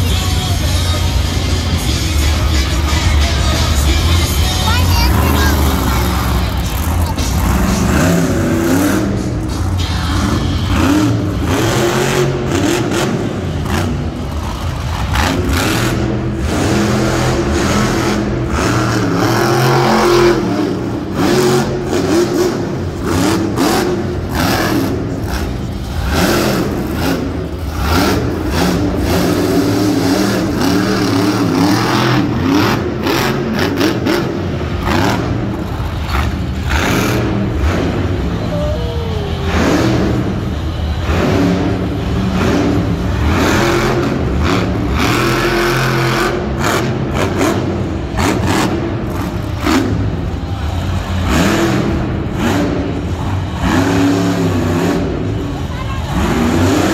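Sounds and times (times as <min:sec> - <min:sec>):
truck engine revving: 0:00.0 - 0:56.9.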